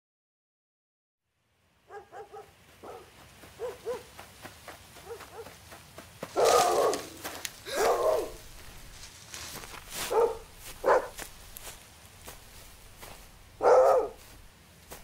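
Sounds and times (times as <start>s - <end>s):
dog barking: 1.9s - 4.1s, 5.0s - 5.6s, 6.4s - 7.1s, 7.7s - 8.4s, 10.0s - 11.2s, 13.6s - 14.3s.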